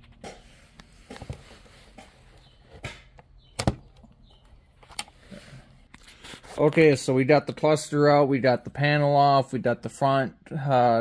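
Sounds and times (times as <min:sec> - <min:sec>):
plastic clicks and knocks: 0:02.7 - 0:05.1.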